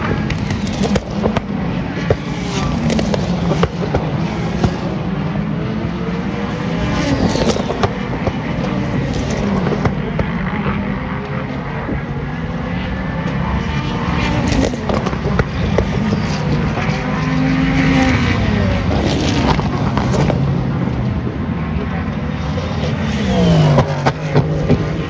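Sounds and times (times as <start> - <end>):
race car engines passing: 0.0 - 25.0.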